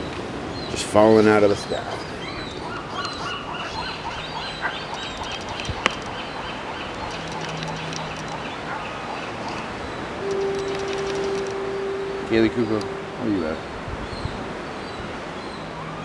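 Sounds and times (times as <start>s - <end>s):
young gull peeping calls: 2.0s - 14.4s.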